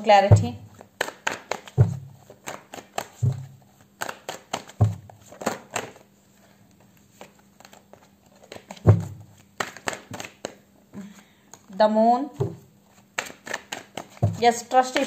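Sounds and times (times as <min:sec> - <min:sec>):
cards being shuffled: 0:00.7 - 0:10.6, 0:12.4 - 0:15.0
deck thudding on table: 0:01.5 - 0:05.9, 0:08.5 - 0:10.3, 0:13.2 - 0:14.4.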